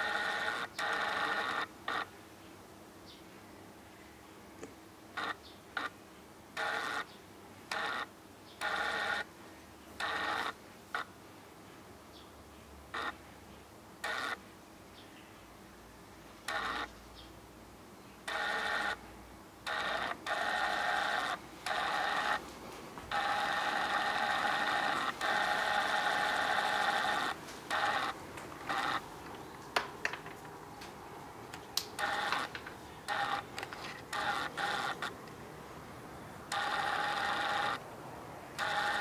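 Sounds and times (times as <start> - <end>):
camcorder lens motor whirring: 0.0 - 2.1, 5.2 - 5.9, 6.6 - 7.1, 7.7 - 9.3, 10.0 - 11.1, 13.0 - 13.2, 14.0 - 14.4, 16.5 - 16.9, 18.2 - 19.0, 19.6 - 22.4, 23.1 - 29.1, 31.8 - 35.2, 36.5 - 37.8, 38.6 - 39.0.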